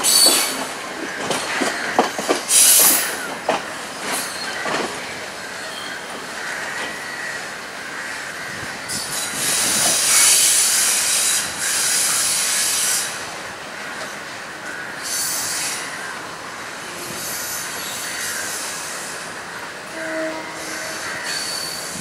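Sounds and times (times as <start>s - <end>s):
train wheels clacking: 0.0s - 5.1s.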